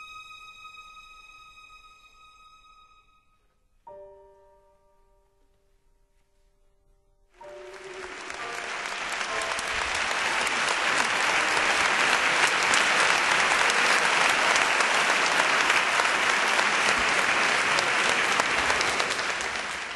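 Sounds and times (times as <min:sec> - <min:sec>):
crowd applauding: 0:07.4 - 0:19.9.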